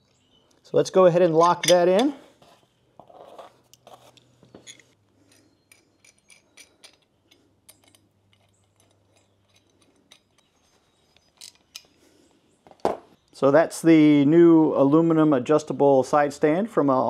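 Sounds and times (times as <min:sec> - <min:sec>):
small metal clicks: 0:03.7 - 0:12.0.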